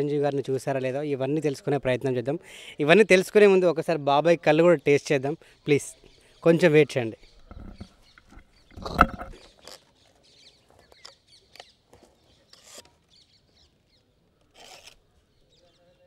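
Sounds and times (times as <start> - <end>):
palm leaf rustling and scraping: 7.4 - 13.4, 14.3 - 15.2.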